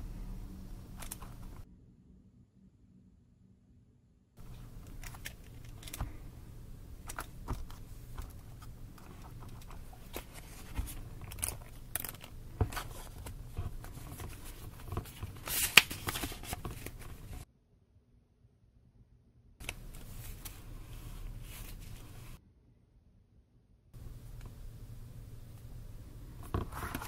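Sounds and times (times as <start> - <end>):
paper pages rustling: 0.8 - 1.6, 4.4 - 17.4, 19.6 - 22.4, 24.0 - 27.0.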